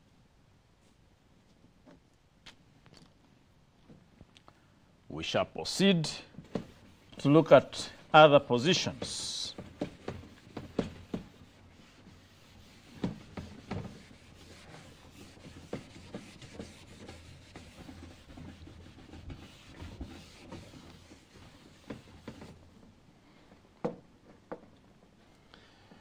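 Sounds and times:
duster rubbing chalkboard: 0:05.3 - 0:22.8.

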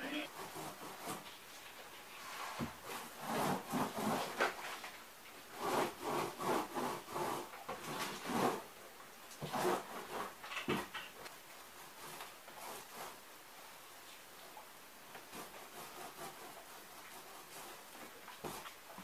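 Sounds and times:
cardboard rubbing and scraping: 0:02.2 - 0:04.8, 0:05.5 - 0:08.7, 0:09.4 - 0:10.9, 0:11.7 - 0:13.3, 0:15.2 - 0:18.9.

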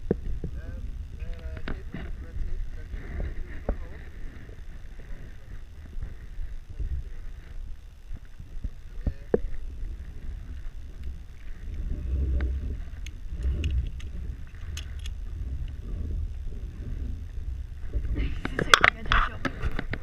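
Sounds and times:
wind buffeting microphone: 0:00.0 - 0:20.0
high ticks: 0:10.4 - 0:17.8.

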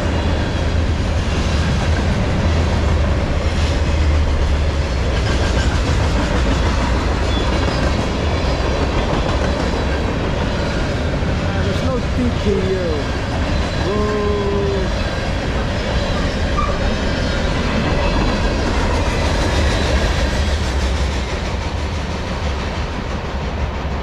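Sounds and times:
freight train rolling past: 0:00.0 - 0:24.0.

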